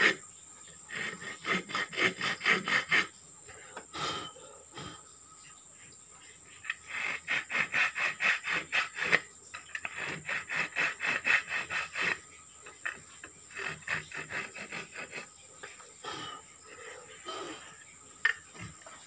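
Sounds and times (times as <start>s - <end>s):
hand saw cutting wood: 0.0s - 0.2s, 0.9s - 3.2s, 6.6s - 16.3s, 18.3s - 19.0s.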